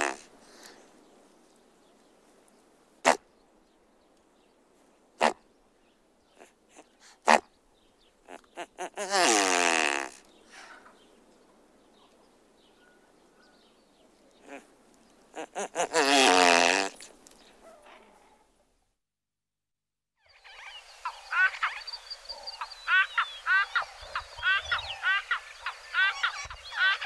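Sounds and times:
bird calling: 20.2s - 27.0s.

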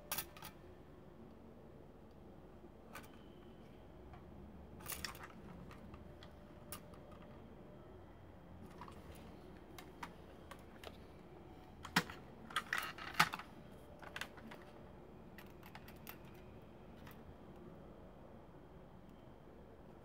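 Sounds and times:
plastic toy clicking and rattling: 4.8s - 7.4s, 11.8s - 14.7s.

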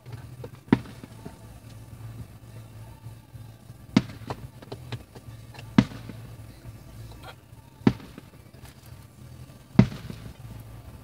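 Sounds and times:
faint firework pops: 0.0s - 2.4s, 3.9s - 6.5s, 7.8s - 8.9s, 9.7s - 10.8s
firework shells booming: 0.0s - 2.4s, 3.8s - 6.5s, 7.8s - 8.6s, 9.7s - 10.9s.

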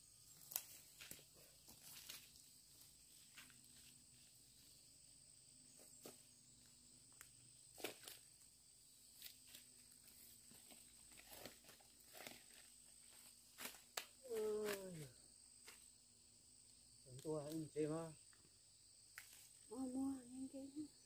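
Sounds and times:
high-pitched insect drone: 0.0s - 21.0s.

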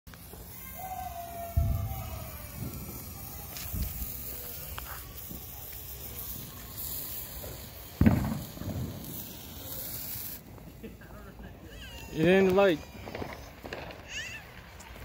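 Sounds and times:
firework hissing and sputtering: 0.1s - 15.0s.

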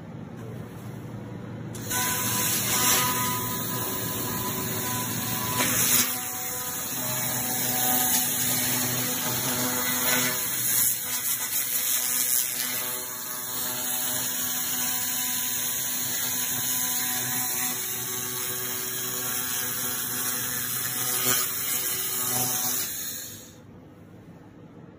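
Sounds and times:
even hum: 0.0s - 10.9s.

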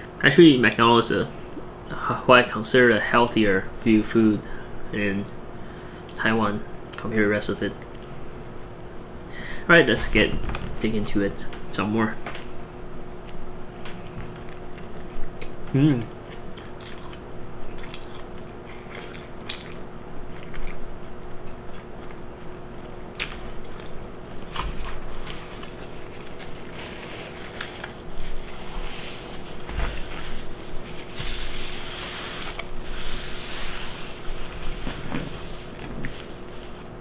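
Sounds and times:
person chewing: 16.3s - 26.7s.

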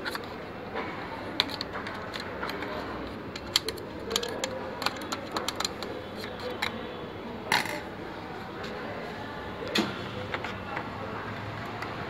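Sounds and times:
screwdriver clicking on printer parts: 1.4s - 6.8s.

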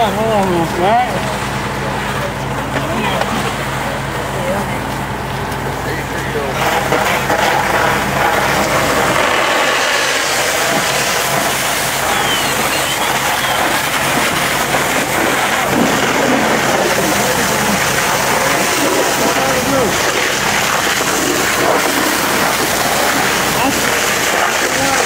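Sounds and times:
low engine hum: 0.0s - 25.0s
hose spraying water hiss: 6.6s - 25.0s.

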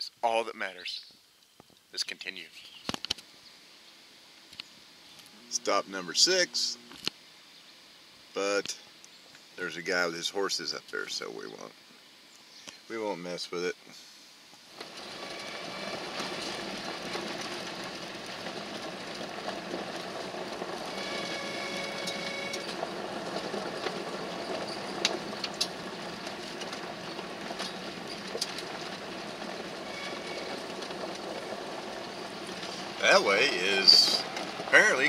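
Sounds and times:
tyre noise on gravel road: 14.6s - 35.0s
light rattles: 14.8s - 35.0s.

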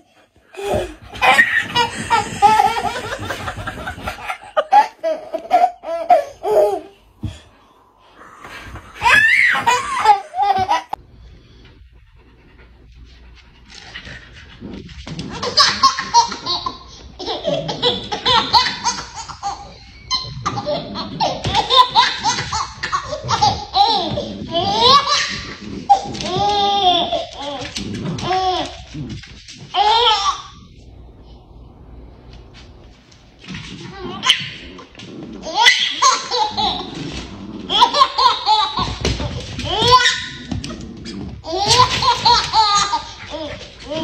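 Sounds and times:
baby laughing: 0.6s - 7.0s, 9.0s - 11.0s, 15.2s - 30.7s, 33.9s - 34.8s, 35.4s - 44.0s.

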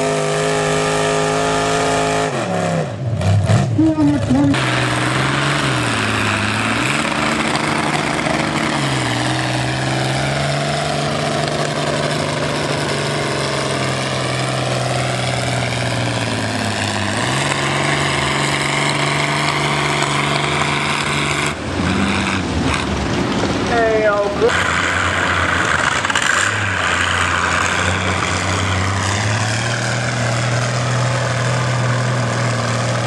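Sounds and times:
tractor engine under load: 3.0s - 33.0s.

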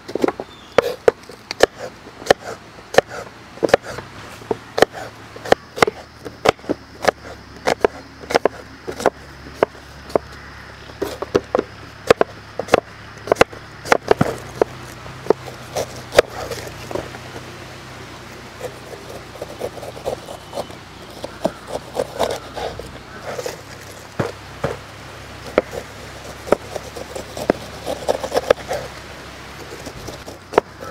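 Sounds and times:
knife chopping on wooden board: 0.2s - 4.1s, 4.8s - 10.2s, 18.6s - 24.8s, 25.4s - 28.9s.

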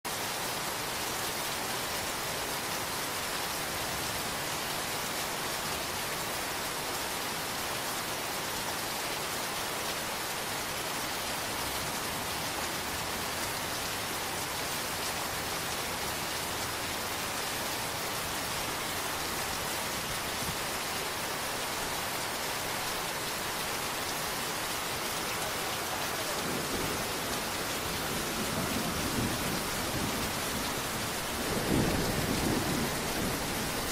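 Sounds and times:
rain falling: 0.0s - 33.9s
low rumble of thunder: 26.3s - 33.9s.

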